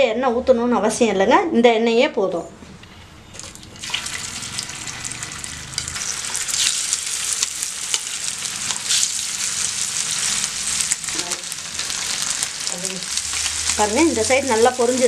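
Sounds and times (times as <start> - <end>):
fish sizzling in hot oil: 3.4 - 15.0.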